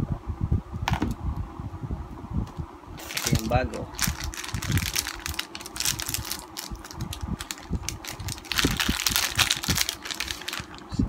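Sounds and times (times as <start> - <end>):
plastic packaging crinkling: 3.0 - 10.9.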